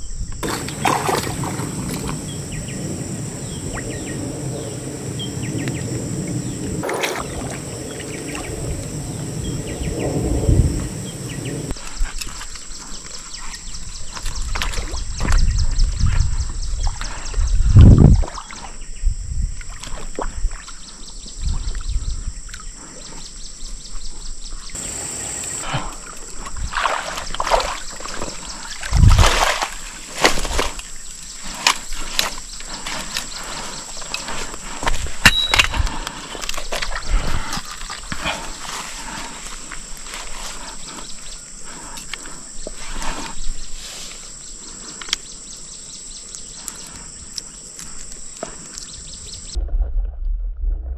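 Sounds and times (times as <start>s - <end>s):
water splashing and sloshing: 0.4s - 4.4s, 5.6s - 9.6s, 14.0s - 18.8s, 19.4s - 21.9s, 24.8s - 44.2s.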